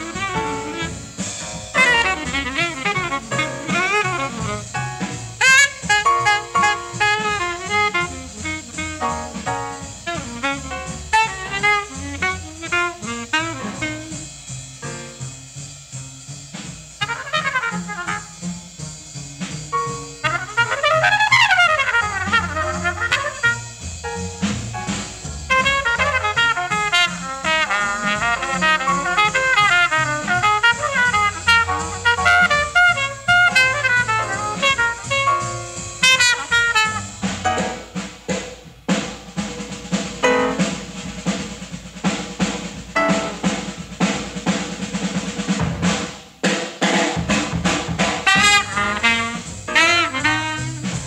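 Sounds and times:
horn playing fast lines: 0.0 - 14.5, 16.9 - 38.0, 48.0 - 51.0
fast trumpet solo: 0.0 - 15.2, 16.9 - 38.2, 40.2 - 41.2, 47.2 - 51.0
walking bass: 0.0 - 38.4, 40.0 - 41.8, 42.4 - 45.9, 47.2 - 51.0
piano: 0.0 - 46.4, 47.1 - 51.0
drums: 0.0 - 51.0.

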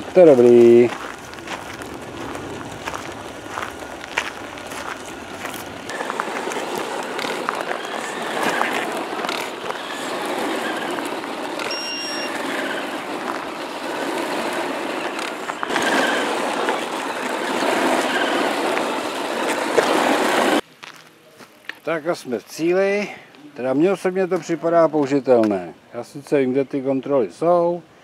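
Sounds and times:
toy truck tyres crunching gravel: 0.0 - 22.1
short electronic beep: 11.6 - 12.4.

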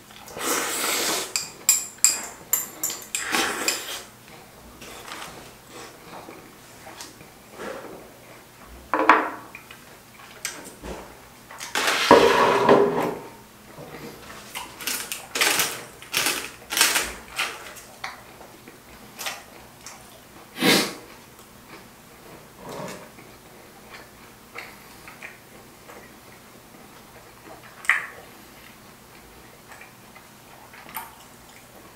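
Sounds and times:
person slurping: 0.3 - 1.4, 3.2 - 4.1
chopsticks clicking on containers: 1.3 - 3.9.

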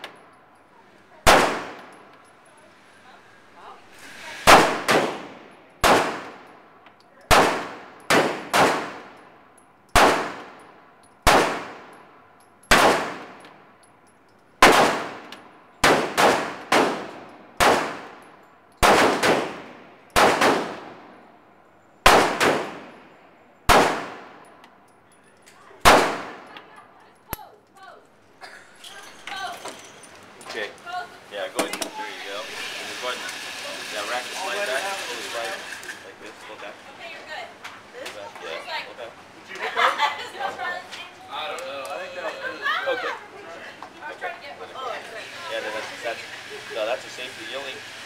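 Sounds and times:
pistol shots with echo: 1.2 - 2.0, 4.5 - 6.5, 7.3 - 9.2, 9.9 - 12.0, 12.7 - 13.4, 14.6 - 18.2, 18.8 - 21.0, 22.0 - 23.0, 23.7 - 24.5, 25.8 - 26.5.

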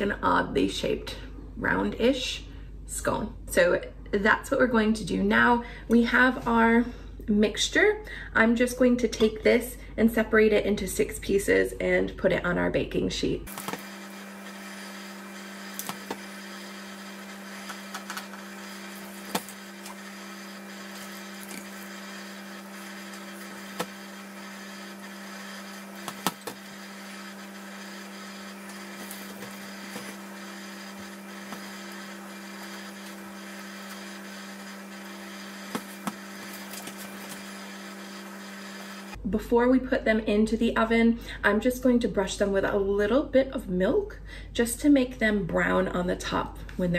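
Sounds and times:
steady electric hum: 11.0 - 39.6.

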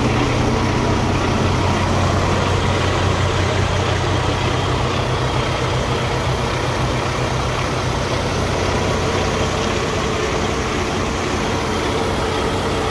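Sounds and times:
diesel engine idling: 0.0 - 12.9.

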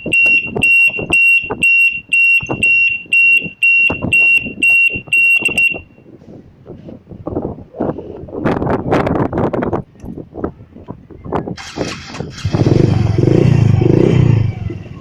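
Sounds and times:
alarm beeping shrill tone: 0.0 - 6.0.

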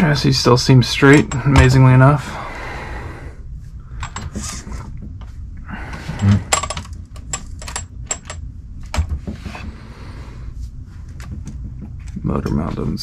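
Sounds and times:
small clicks and knocks of parts: 4.0 - 5.3, 6.1 - 9.1.

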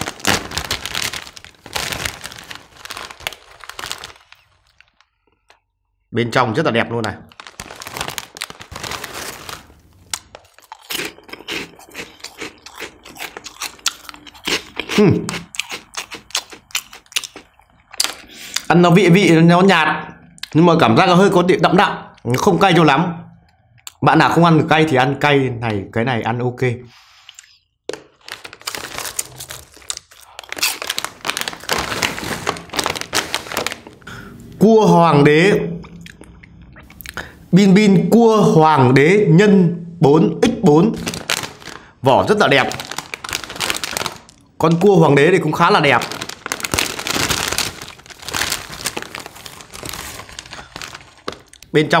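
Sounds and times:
foil snack bag rustling: 0.0 - 5.4, 7.3 - 13.9, 28.1 - 34.0, 41.0 - 44.4, 45.4 - 51.6
crunching snacks: 0.0 - 5.6, 7.3 - 18.3, 27.9 - 34.3, 41.0 - 51.7.

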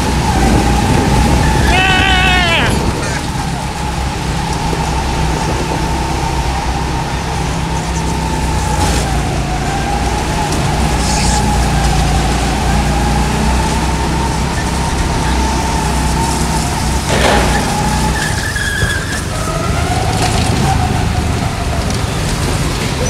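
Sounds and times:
whining tone: 0.0 - 22.0
go-kart motor drone: 0.0 - 23.0.

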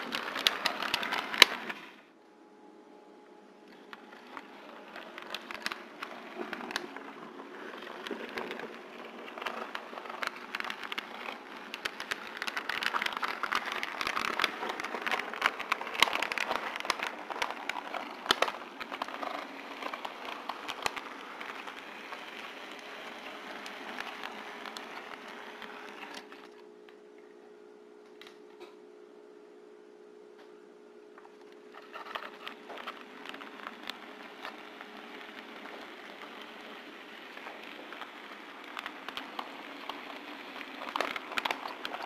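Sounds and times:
wheels clicking on rails: 4.2 - 26.3, 32.0 - 42.0.

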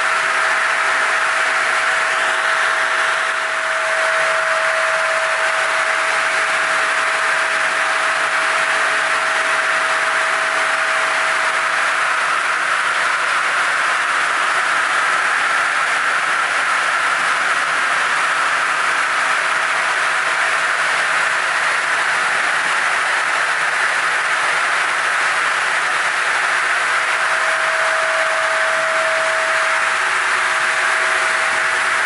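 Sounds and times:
circular saw whirring hiss: 0.0 - 32.0
faint steady whine: 0.0 - 32.0.

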